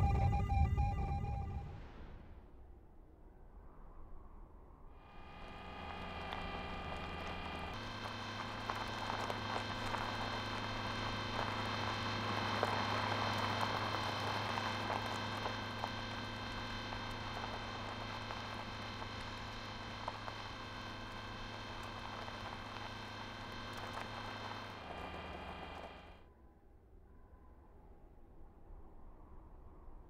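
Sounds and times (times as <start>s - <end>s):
motor hum with held tones: 0.0s - 2.2s, 5.0s - 26.3s
wheels crackling on gravel: 5.2s - 26.2s.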